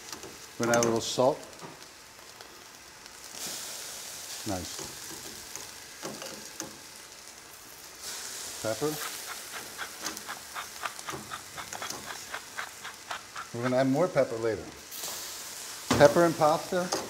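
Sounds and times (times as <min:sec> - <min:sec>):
vegetables sizzling in a pan: 0:00.0 - 0:17.0
pepper mill grinding: 0:08.6 - 0:14.2.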